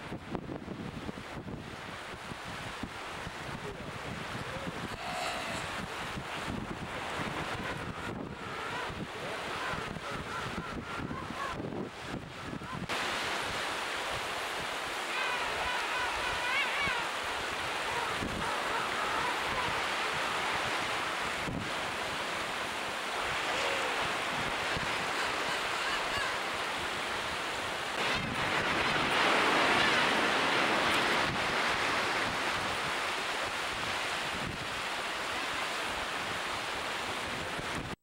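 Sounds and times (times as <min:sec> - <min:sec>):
surf: 0:00.0 - 0:38.0
wind on microphone: 0:00.0 - 0:38.0
penguins warbling calls: 0:25.0 - 0:26.4.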